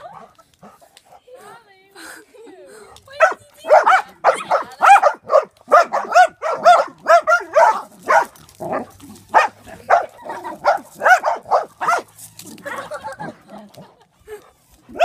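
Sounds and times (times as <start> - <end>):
small dog barking: 3.2 - 8.4, 9.3 - 12.1.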